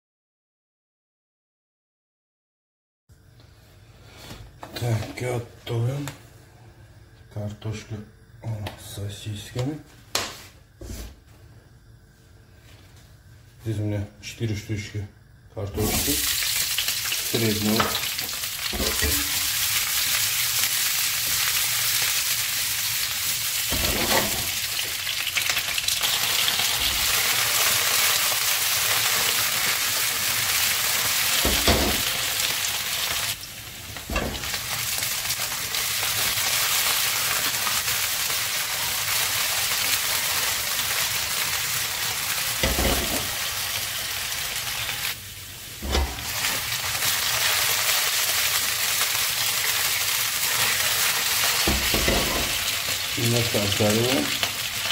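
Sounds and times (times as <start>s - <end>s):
food sizzling in oil: 15.8s - 54.9s
pan knocking on burner: 31.4s - 32.1s, 42.6s - 43.3s, 51.6s - 52.6s.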